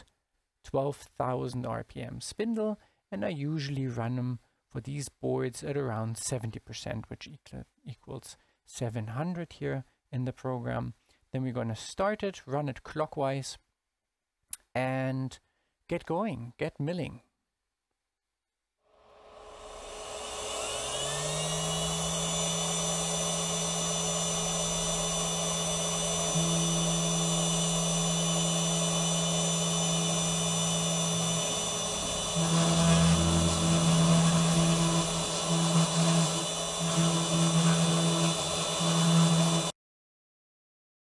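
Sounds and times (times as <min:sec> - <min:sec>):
mill spindle whine: 0:19.2 - 0:39.7
pulsing hum of axis motors: 0:19.3 - 0:39.7.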